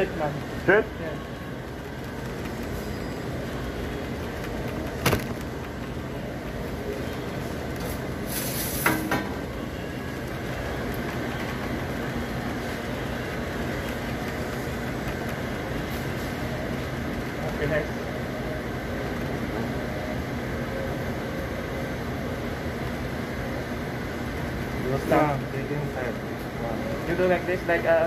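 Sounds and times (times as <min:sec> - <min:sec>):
kitchen ventilation drone: 0:00.0 - 0:28.0
brief hiss: 0:08.3 - 0:09.1.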